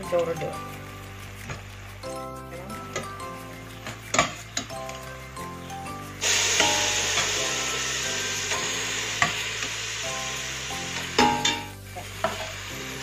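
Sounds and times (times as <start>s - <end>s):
spices sizzling in a pot: 0.0s - 13.0s
spoon scraping and knocking pot: 3.8s - 5.0s, 11.0s - 12.6s.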